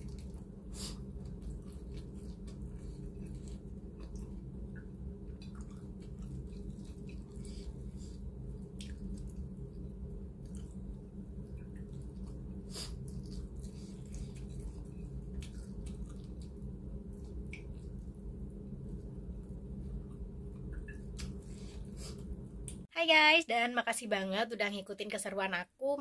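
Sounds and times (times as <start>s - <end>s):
person chewing: 0.0s - 4.5s, 5.3s - 9.5s, 11.7s - 16.6s
steady low hum: 0.0s - 23.0s.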